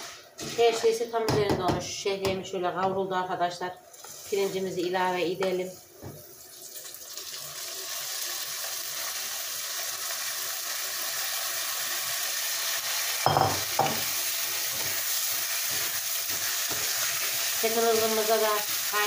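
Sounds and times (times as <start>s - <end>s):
rice sizzling in a hot pan: 0.0s - 1.0s, 3.9s - 19.0s
spatula stirring: 0.0s - 1.0s, 14.0s - 18.8s.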